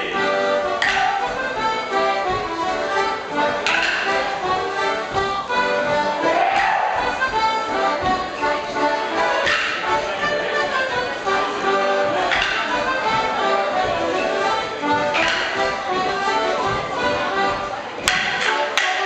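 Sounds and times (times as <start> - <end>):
free-reed instrument dance tune: 0.0 - 19.0
wooden sticks clacking: 0.7 - 1.4, 3.6 - 7.5, 9.2 - 10.0, 12.2 - 14.0, 15.0 - 16.1, 18.0 - 19.0.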